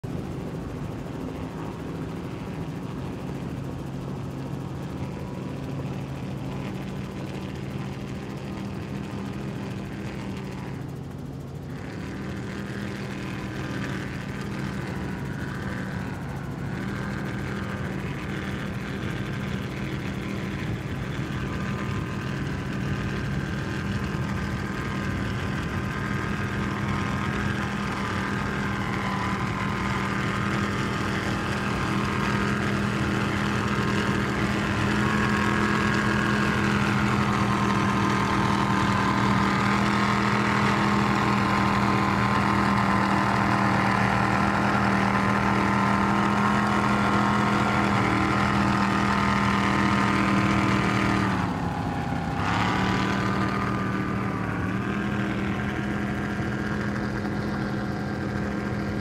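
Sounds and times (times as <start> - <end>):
powerboat engines at high speed: 0.0 - 59.0.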